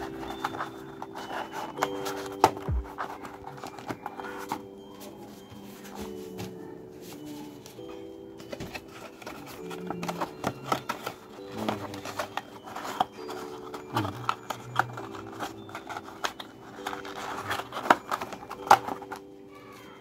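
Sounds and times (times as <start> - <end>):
cardboard boxes folded by hand: 0.0 - 20.0
soft background music: 0.0 - 20.0
crisp card snaps and taps: 8.4 - 19.2.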